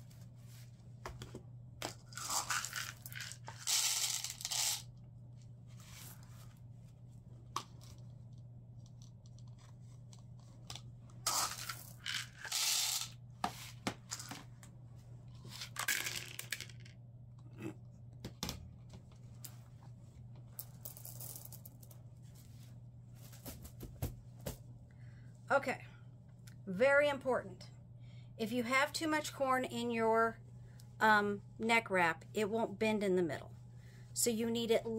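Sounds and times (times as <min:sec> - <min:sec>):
low steady hum: 0:00.0 - 0:34.9
corn kernels pouring through funnel: 0:02.1 - 0:04.8, 0:11.3 - 0:13.2
kernels and scoop clicking: 0:02.1 - 0:04.9, 0:11.3 - 0:13.2.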